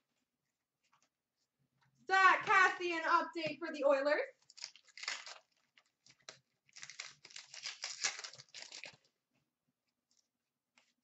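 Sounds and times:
card packs crinkling and rustling: 4.4 - 9.2.

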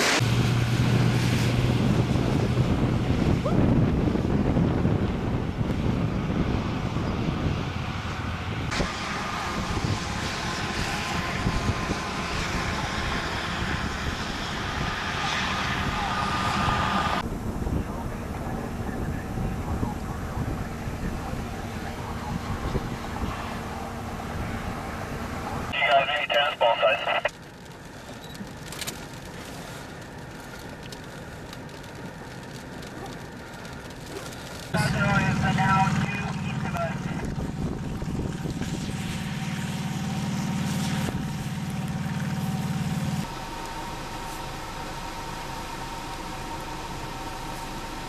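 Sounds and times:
wind rumbling on microphone: 0.2 - 25.3, 36.9 - 42.0
vehicle cabin noise: 25.3 - 37.2.

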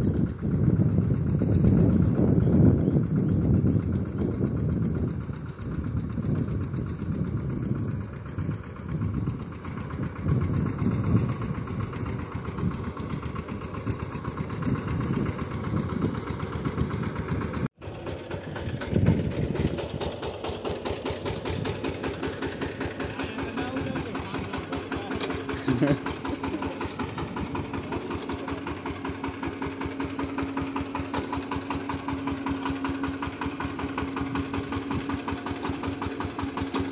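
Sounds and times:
diesel engine running: 0.0 - 36.9.

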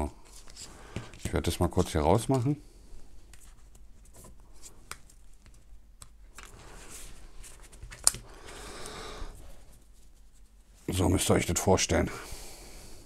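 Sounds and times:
hands rubbing and sliding objects: 0.2 - 2.5, 3.2 - 11.0.

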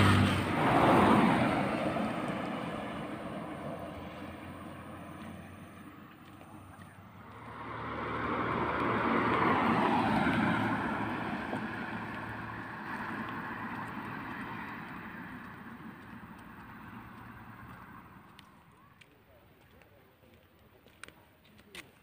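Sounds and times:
car driving past: 0.0 - 18.4.

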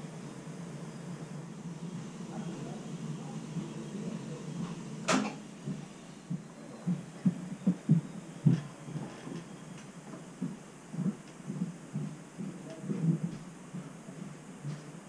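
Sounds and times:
low steady hum: 0.0 - 15.0.

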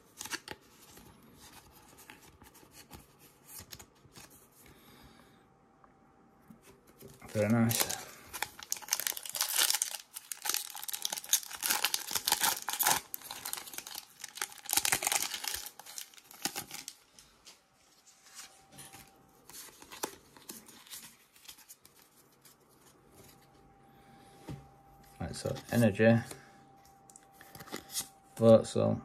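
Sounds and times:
foil wrapper tearing and crinkling: 7.2 - 17.0.

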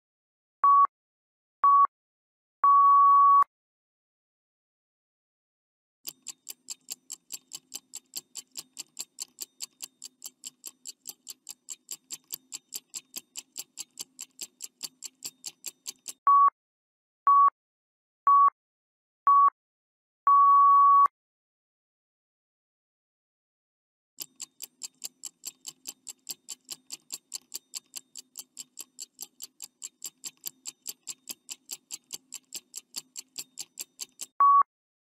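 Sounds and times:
short electronic beeps: 2.7 - 3.5, 16.3 - 16.5, 20.3 - 21.1, 34.4 - 34.7
clock ticking: 6.1 - 16.2, 24.2 - 34.4.

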